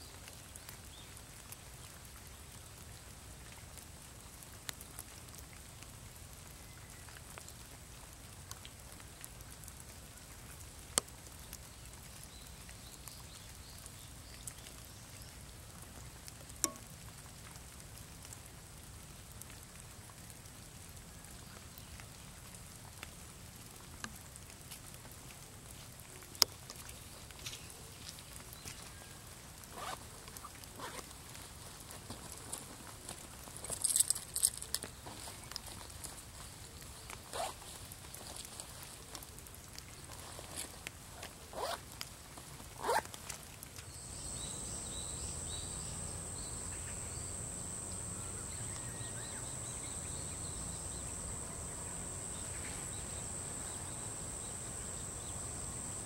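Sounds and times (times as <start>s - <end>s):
faint rain patter: 0.0s - 56.0s
raindrops ticking: 15.8s - 41.1s, 41.8s - 56.0s.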